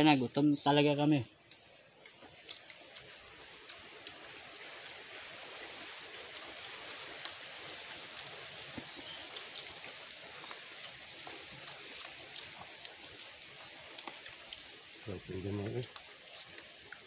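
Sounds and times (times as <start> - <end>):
running water hiss: 0.0 - 17.0
people eating with hands: 0.9 - 17.0.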